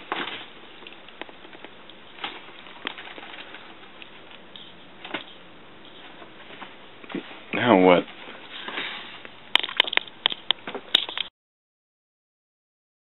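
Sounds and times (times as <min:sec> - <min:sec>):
papers rustling: 0:00.0 - 0:07.5.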